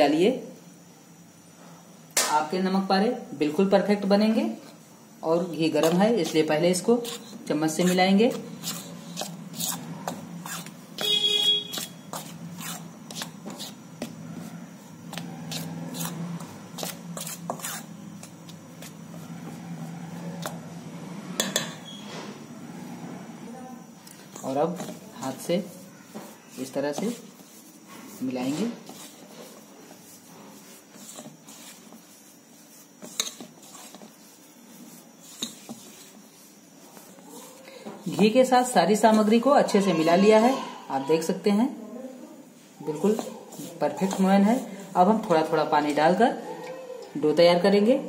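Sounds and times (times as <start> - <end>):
spoon stirring in steel bowl: 5.5 - 20.8, 21.4 - 22.0, 24.0 - 39.5, 42.9 - 46.2
metal squeal on bowl: 8.6 - 13.6, 21.4 - 23.2.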